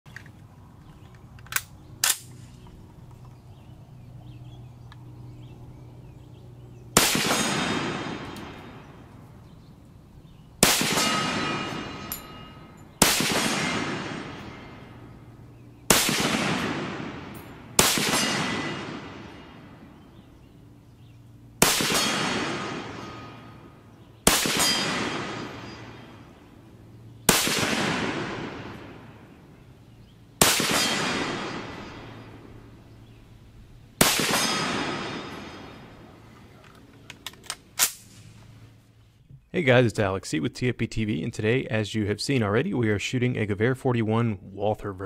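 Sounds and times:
sharp clicks: 0.1s - 3.4s, 36.6s - 38.4s
rifle shots with echoing decay: 6.9s - 9.6s, 10.6s - 33.2s, 34.0s - 38.4s.

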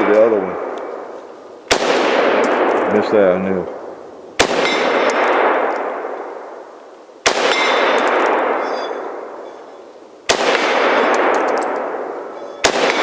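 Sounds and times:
rifle shots with echo: 0.0s - 1.1s, 1.7s - 9.5s, 10.3s - 13.0s
high metallic ringing: 11.0s - 12.6s.

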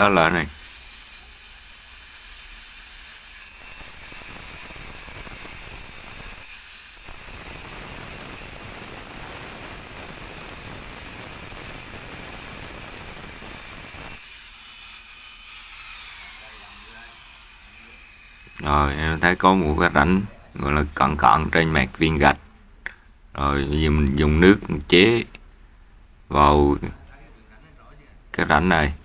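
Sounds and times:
grinder motor whining: 0.0s - 19.9s
angle grinder cutting stone: 0.0s - 20.3s.

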